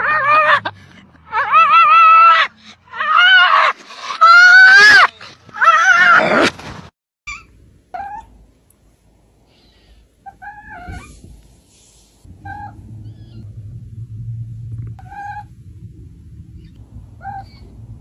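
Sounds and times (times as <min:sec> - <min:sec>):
dog yowling: 0:00.0 - 0:00.7, 0:01.3 - 0:06.5.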